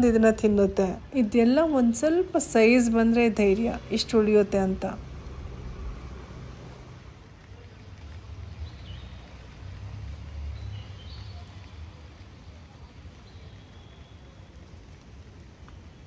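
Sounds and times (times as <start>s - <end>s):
steady low rumble: 0.0s - 7.4s.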